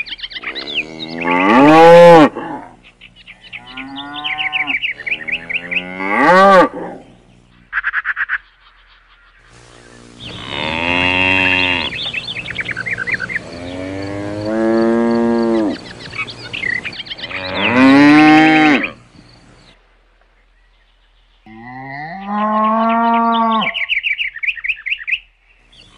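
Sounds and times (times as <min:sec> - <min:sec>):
cows mooing: 0:00.5 - 0:02.8, 0:03.5 - 0:07.1, 0:10.2 - 0:12.1, 0:13.2 - 0:15.9, 0:17.2 - 0:19.0, 0:21.5 - 0:23.9.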